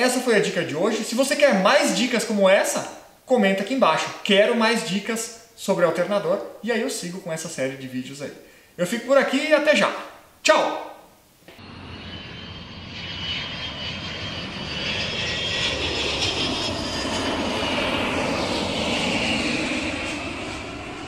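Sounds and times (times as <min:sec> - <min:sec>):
airplane flyby: 0:11.5 - 0:21.0.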